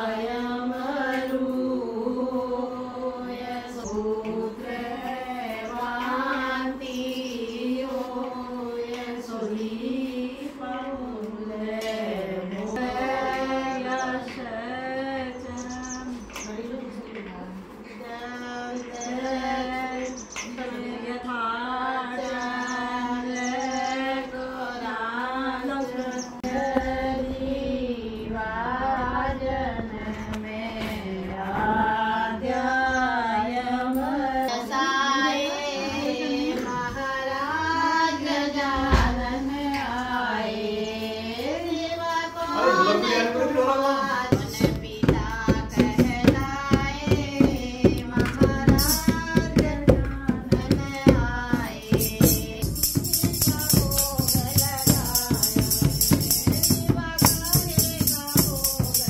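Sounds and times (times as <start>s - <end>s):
women singing: 0.0s - 59.0s
drum beat: 44.0s - 59.0s.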